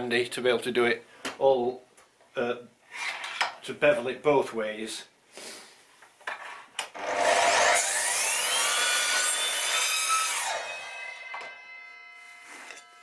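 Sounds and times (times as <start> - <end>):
mitre saw whining: 7.0 - 13.0
saw cutting through wood: 7.0 - 13.0.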